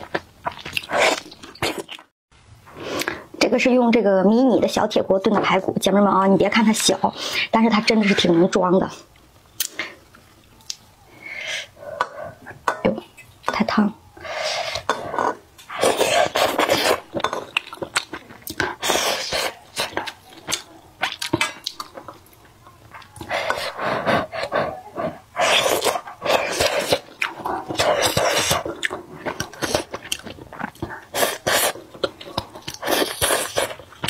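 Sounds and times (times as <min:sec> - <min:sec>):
chewing and wet mouth noises: 0:00.0 - 0:02.1, 0:09.1 - 0:10.8, 0:14.2 - 0:34.0.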